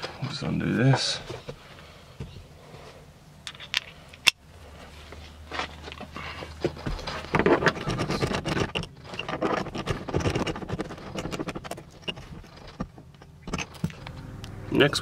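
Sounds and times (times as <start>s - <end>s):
metal clicks and scrapes: 7.0s - 14.2s.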